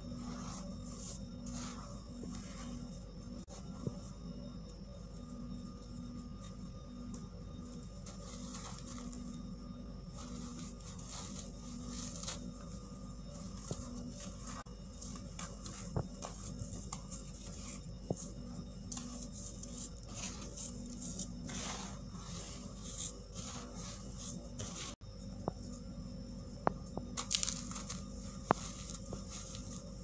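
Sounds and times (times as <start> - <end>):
fingers raking baking soda: 0.0 - 3.4, 19.0 - 25.0
steady low hum: 0.0 - 30.0.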